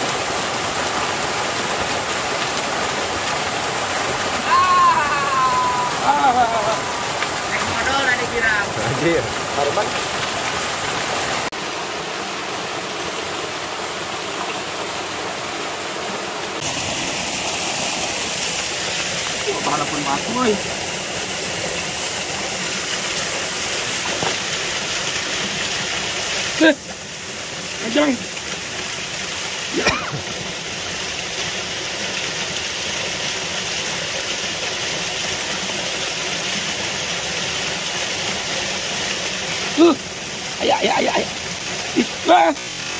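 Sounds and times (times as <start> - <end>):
waterfall pouring into pool: 0.0 - 42.9.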